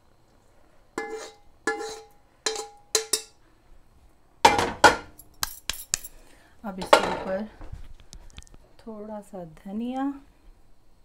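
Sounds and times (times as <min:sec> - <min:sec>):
metal spoon knocking on wok: 0:01.0 - 0:03.3, 0:04.5 - 0:05.1.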